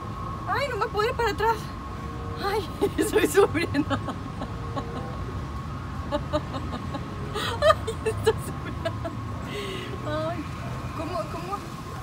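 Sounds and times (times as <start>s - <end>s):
woman laughing: 2.8s - 5.2s, 6.1s - 9.2s.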